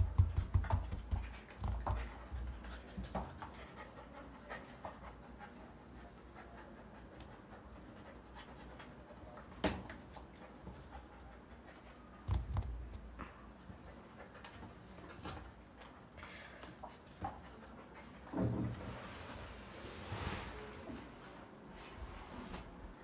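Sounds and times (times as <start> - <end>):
toy and paws scuffing on tile: 0.0 - 3.8, 7.2 - 18.2
puppy panting: 0.1 - 9.5, 10.1 - 18.2.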